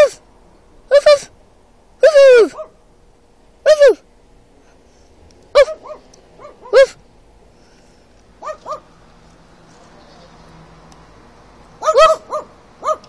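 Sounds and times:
person imitating dog bark: 0.0 - 0.2, 0.9 - 1.3, 2.0 - 2.7, 3.6 - 4.0, 5.5 - 7.0, 11.8 - 13.0
dog barking behind glass: 2.4 - 2.8, 5.5 - 7.0, 8.4 - 8.9, 11.8 - 13.0.

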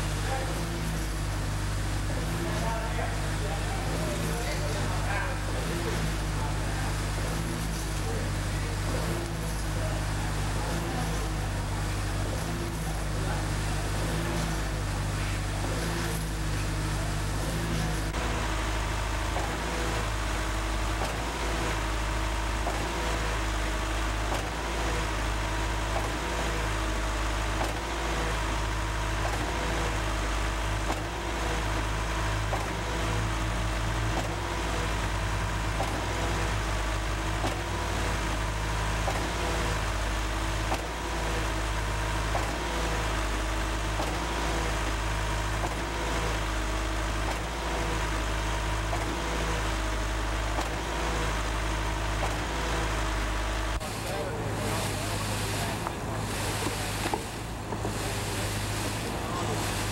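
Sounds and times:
concrete pump engine hum: 0.0 - 59.9
regular pump knock: 17.5 - 26.8, 27.4 - 30.0, 30.7 - 59.9.

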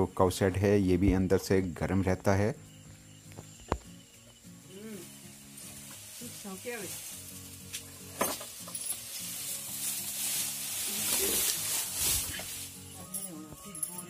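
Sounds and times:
hay rustling and crackling: 4.7 - 13.9.

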